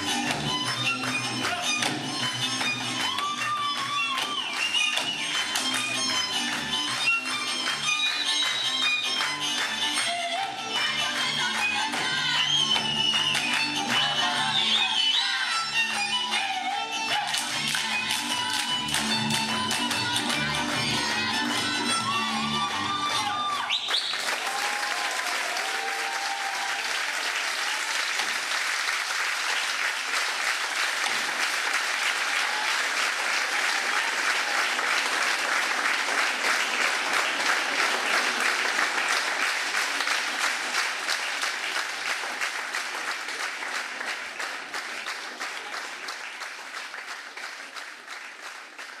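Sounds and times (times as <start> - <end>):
audience applauding: 0.0 - 10.1, 22.4 - 49.0
fiddle notes: 0.0 - 23.6.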